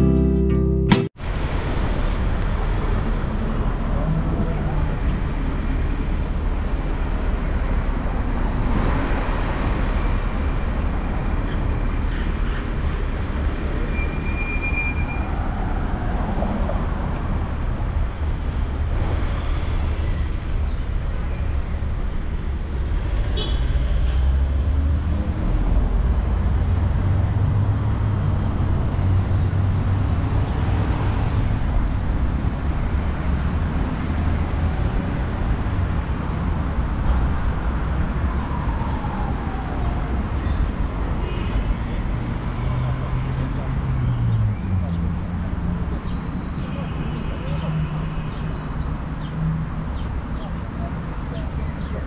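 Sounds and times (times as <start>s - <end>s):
city traffic rumble: 0.0s - 52.0s
short high squeak: 13.8s - 15.3s.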